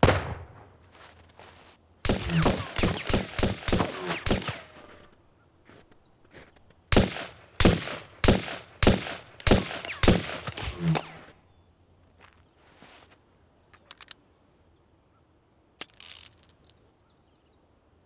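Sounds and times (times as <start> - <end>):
handgun shots: 2.1 - 5.0, 6.9 - 11.3.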